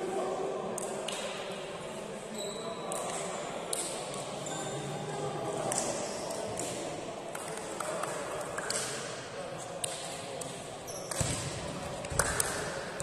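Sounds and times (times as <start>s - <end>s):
faint voices in hall: 0.0s - 13.0s
shoe squeaks on court: 2.3s - 3.0s.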